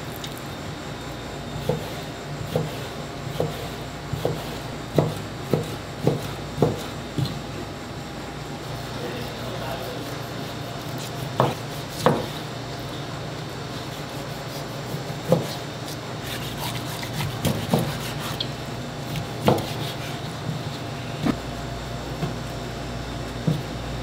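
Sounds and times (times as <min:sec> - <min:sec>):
steady kitchen hum: 0:00.0 - 0:24.0
knife chopping on wooden board: 0:01.6 - 0:07.4, 0:11.0 - 0:12.4, 0:14.5 - 0:18.4, 0:19.1 - 0:20.2.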